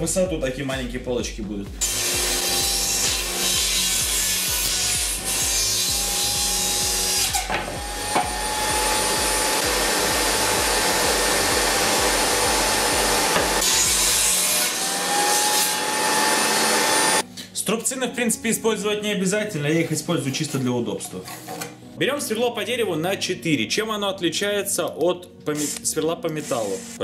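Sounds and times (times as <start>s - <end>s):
table saw cutting wood: 1.8s - 17.2s, 25.5s - 27.0s.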